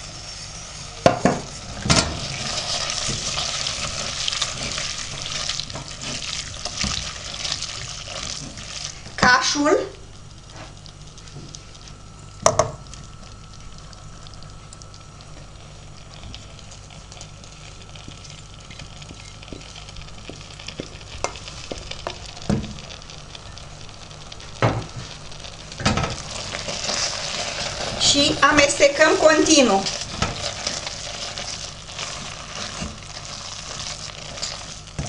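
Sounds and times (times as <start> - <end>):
butter sizzling: 0.0 - 35.0
wooden spoon scraping pot: 26.2 - 34.9.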